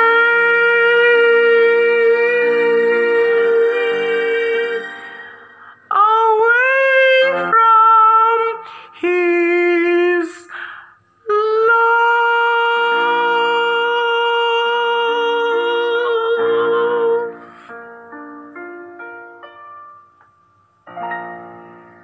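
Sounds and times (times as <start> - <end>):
man singing a long high note: 0.0 - 5.0, 11.3 - 17.4
piano chords: 0.0 - 8.7, 12.0 - 22.0.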